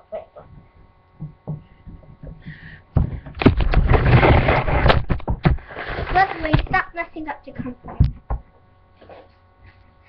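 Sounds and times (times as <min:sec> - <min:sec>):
soft thumps: 0:00.5 - 0:03.8
loud scraping and low thuds: 0:02.5 - 0:06.9.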